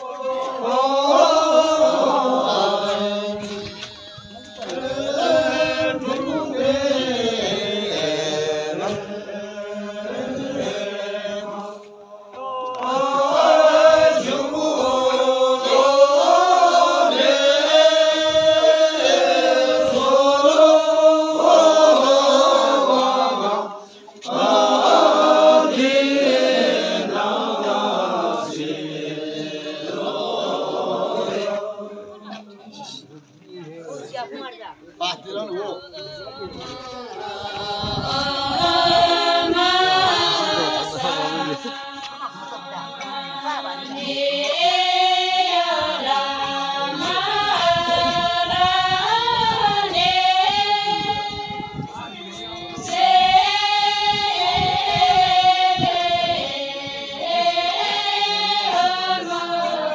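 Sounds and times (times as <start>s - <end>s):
person chanting: 36.6s - 48.4s.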